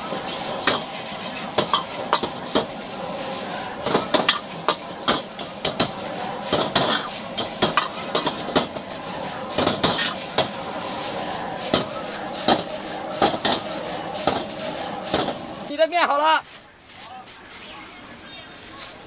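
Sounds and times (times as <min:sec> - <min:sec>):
metal utensils clanking on wok: 0:00.0 - 0:15.5
food sizzling in wok: 0:00.0 - 0:15.7.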